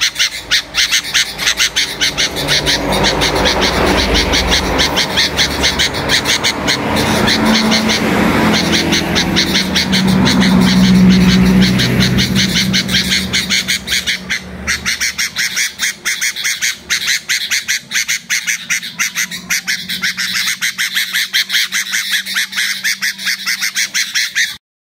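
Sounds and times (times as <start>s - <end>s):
songbird chirping: 0.0s - 24.6s.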